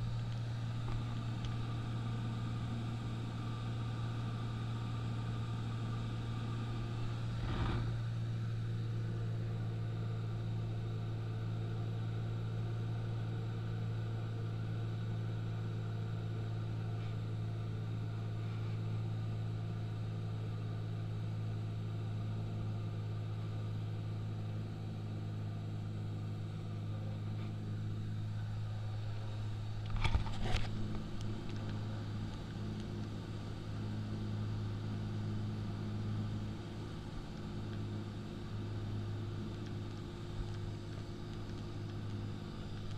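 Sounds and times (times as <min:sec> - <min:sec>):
propeller plane engine droning: 0:00.0 - 0:42.9
brief clatter: 0:29.8 - 0:30.8.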